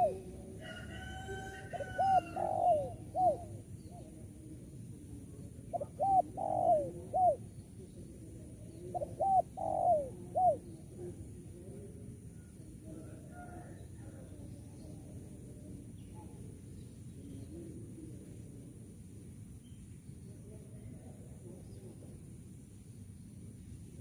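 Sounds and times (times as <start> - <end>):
dove cooing: 0.0 - 14.4.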